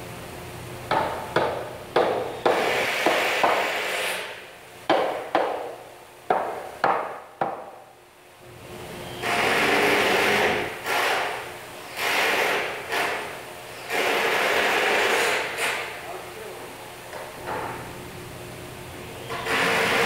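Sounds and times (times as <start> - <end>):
hammer striking wood: 0.9 - 3.8, 4.9 - 7.8.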